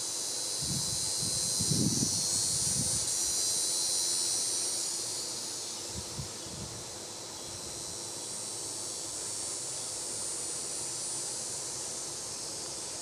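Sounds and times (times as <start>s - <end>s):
insect chorus buzzing: 0.0s - 13.0s
wind rumble on microphone: 0.6s - 3.1s.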